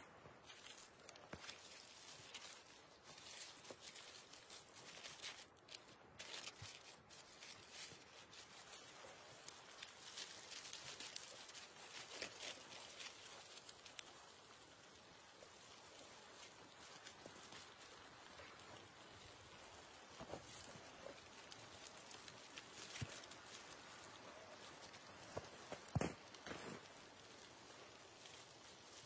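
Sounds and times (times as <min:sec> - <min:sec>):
campfire crackling: 0:00.0 - 0:29.0
wood and foil shifting in coals: 0:00.1 - 0:29.0.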